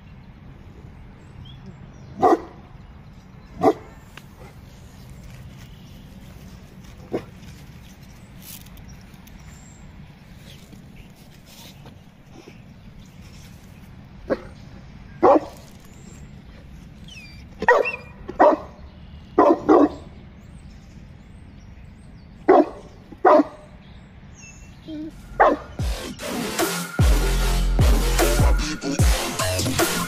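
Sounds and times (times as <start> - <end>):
dog barking: 2.2 - 2.6, 3.6 - 4.6, 7.1 - 7.4, 14.3 - 14.6, 15.2 - 15.6, 17.6 - 18.8, 19.4 - 20.1, 22.5 - 23.7, 25.3 - 25.7
electronic music: 25.2 - 30.0.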